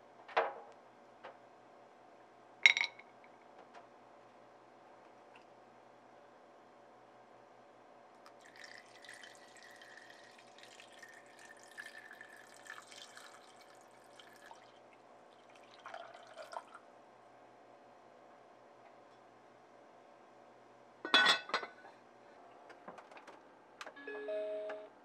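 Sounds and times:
water pouring into a bowl: 8.3 - 16.8.

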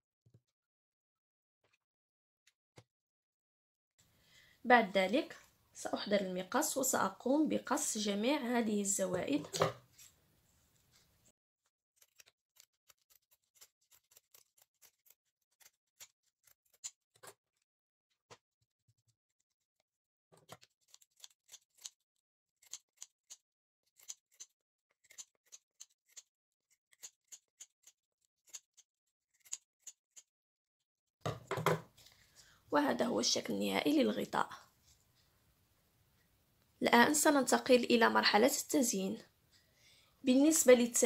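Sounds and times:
scissors snipping: 12.0 - 17.0, 20.5 - 22.0, 22.6 - 30.3.

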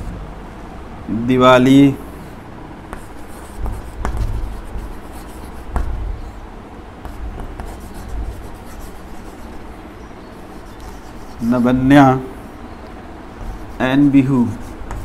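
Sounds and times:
chalk tapping on board: 2.9 - 6.2, 7.0 - 9.7, 10.5 - 11.6, 13.4 - 15.0
chalk scratching on blackboard: 2.9 - 6.3, 7.0 - 9.8, 10.4 - 11.9, 13.3 - 15.0.

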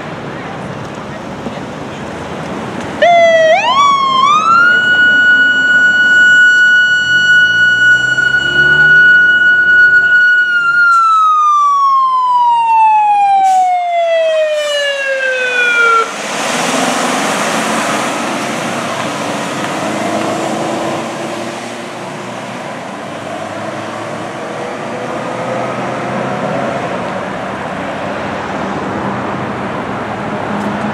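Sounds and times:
fire truck engine driving away: 0.0 - 30.9
fire truck siren wailing: 3.0 - 22.2.

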